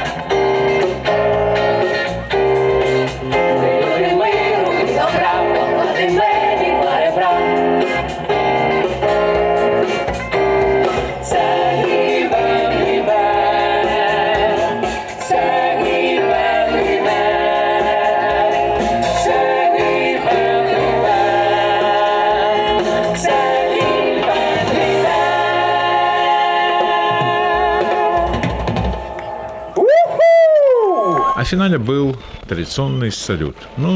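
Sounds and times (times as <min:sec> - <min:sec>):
jazz band with brass and drums: 0:00.0 - 0:29.6
group singing together: 0:03.3 - 0:09.8, 0:10.8 - 0:29.0.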